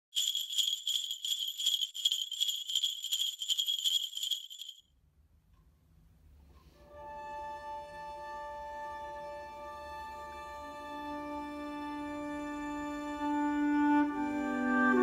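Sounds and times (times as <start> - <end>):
sleigh bells shaken rhythmically: 0.0 - 4.8.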